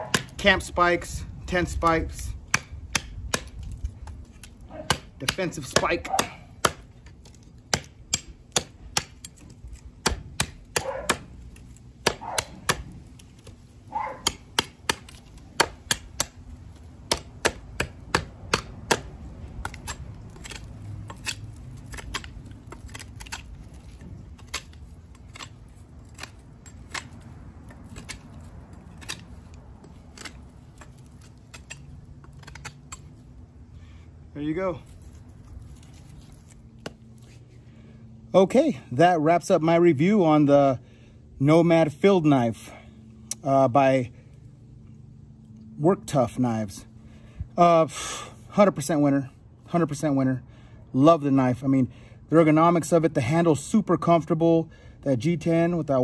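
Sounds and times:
knife chopping dry wood: 0.0s - 0.8s, 1.6s - 33.2s, 34.9s - 37.4s.

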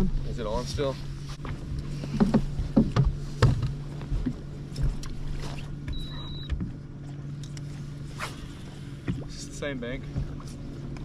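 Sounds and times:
trolling motor humming: 0.0s - 11.0s
short high beep: 5.9s - 6.5s.

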